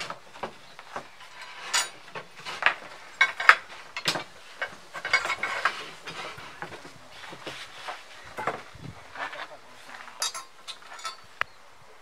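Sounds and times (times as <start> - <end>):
metal clamps clinking and knocking: 1.2 - 6.8, 10.1 - 11.3.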